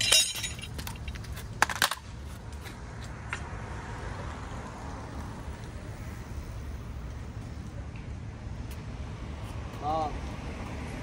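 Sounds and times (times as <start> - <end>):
hand tools clinking: 0.0 - 2.0.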